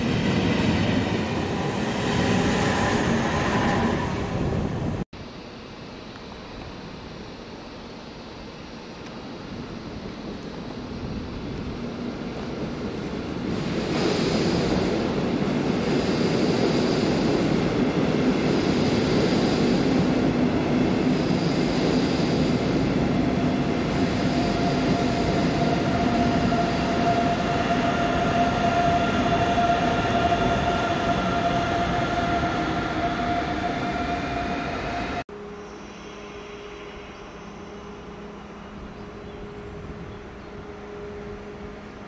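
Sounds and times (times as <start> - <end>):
electric locomotive whine: 0.0 - 42.0
train wheels rumbling on rail: 9.0 - 35.2.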